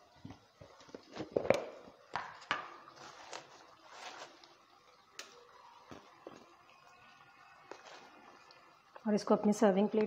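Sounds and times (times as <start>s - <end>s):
kitchen items knocking and clicking: 1.2s - 2.8s.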